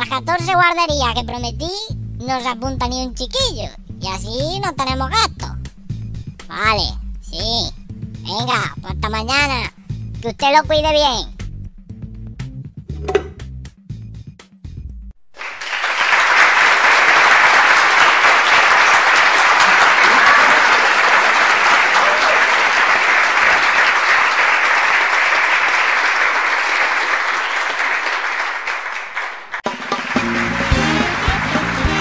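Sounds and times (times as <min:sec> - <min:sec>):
audience applause: 0:15.4 - 0:32.0.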